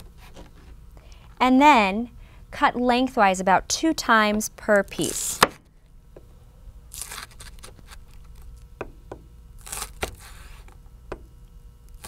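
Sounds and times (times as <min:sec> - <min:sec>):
crisp cutting of onion: 0:06.9 - 0:08.7, 0:09.6 - 0:10.8.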